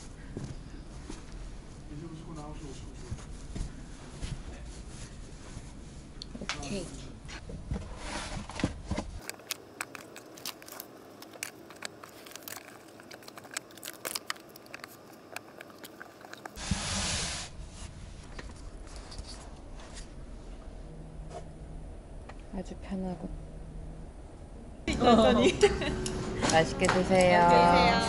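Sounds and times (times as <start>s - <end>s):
paper rustling: 7.9s - 16.6s.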